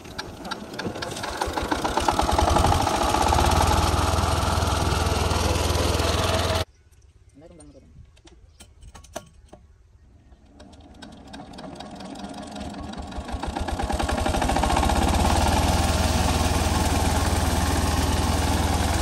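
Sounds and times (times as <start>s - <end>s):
diesel engine starting up: 0.0s - 6.7s, 10.6s - 19.0s.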